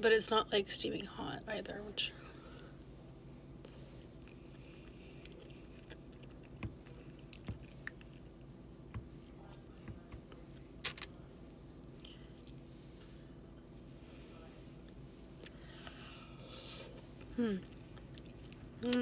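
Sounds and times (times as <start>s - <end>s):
chewing soft food: 3.6s - 10.7s, 14.8s - 19.0s.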